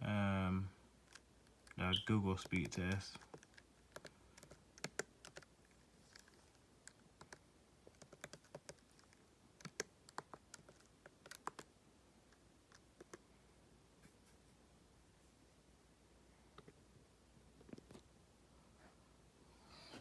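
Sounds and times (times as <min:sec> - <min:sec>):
laptop keyboard typing: 0:01.0 - 0:13.2.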